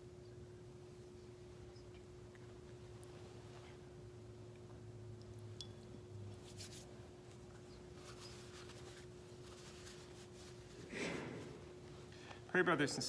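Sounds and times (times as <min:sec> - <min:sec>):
low electrical hum: 0:00.0 - 0:13.0
towel rustling: 0:07.9 - 0:12.1.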